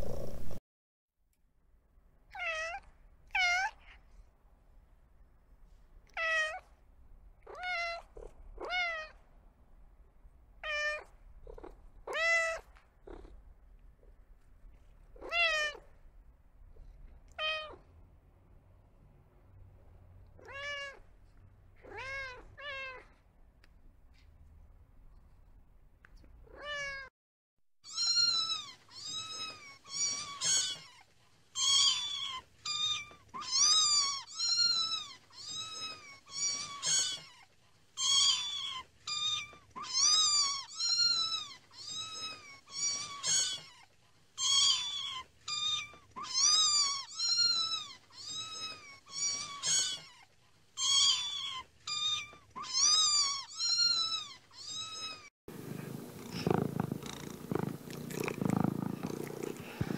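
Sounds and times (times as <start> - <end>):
cat meowing: 2.3 - 4.0, 6.1 - 6.6, 7.4 - 9.2, 10.6 - 13.2, 15.2 - 15.9, 20.4 - 21.0, 21.8 - 23.1, 31.6 - 55.3.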